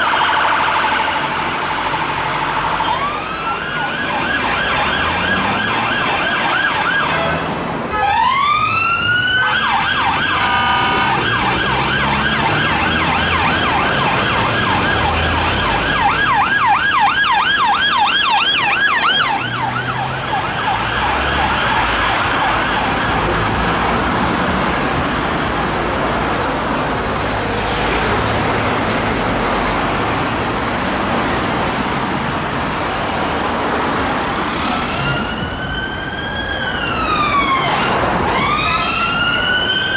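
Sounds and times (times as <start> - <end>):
police siren yelping: 0.0 - 23.3, 34.8 - 39.9
road traffic noise: 0.0 - 39.9.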